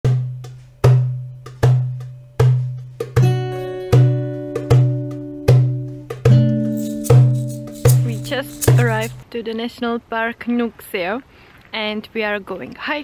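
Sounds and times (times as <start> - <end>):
steady beat with low notes: 1.5 - 9.2
higher tuned notes: 3.0 - 9.2.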